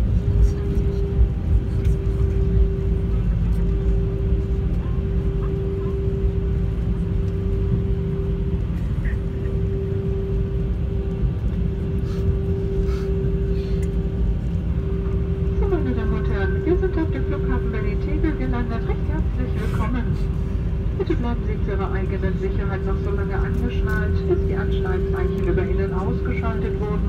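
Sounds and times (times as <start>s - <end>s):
engines idling low rumble: 0.0s - 27.0s
steady mid-pitched hum: 0.0s - 27.0s.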